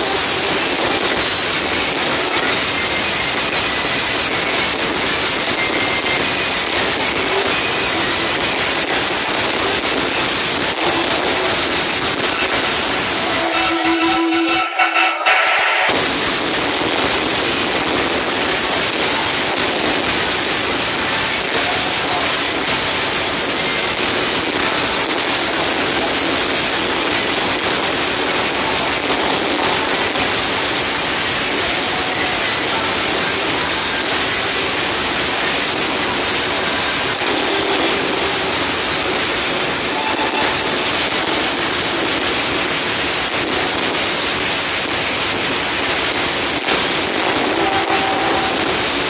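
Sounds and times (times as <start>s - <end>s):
crowd noise: 0.0s - 49.0s
distorted loud club music: 0.0s - 49.0s
dance music: 6.8s - 16.5s, 31.7s - 42.6s, 46.6s - 49.0s.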